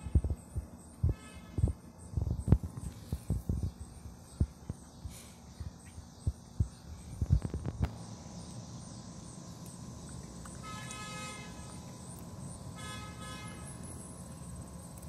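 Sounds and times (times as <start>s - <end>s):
low thumps near microphone: 0.0s - 3.8s
steady low hum: 0.0s - 15.0s.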